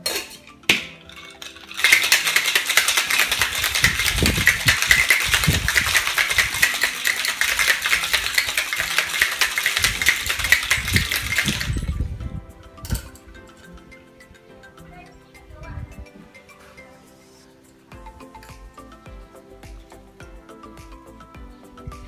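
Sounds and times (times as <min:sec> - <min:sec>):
ice rattling in cocktail shaker: 0:00.0 - 0:12.1
metal clicks of shaker closing: 0:00.1 - 0:12.0.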